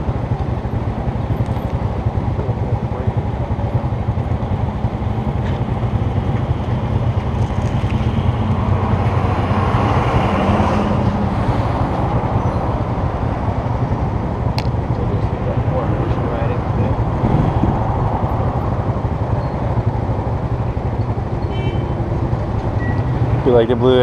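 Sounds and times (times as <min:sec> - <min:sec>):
motorbike engine idling: 0:00.0 - 0:09.6.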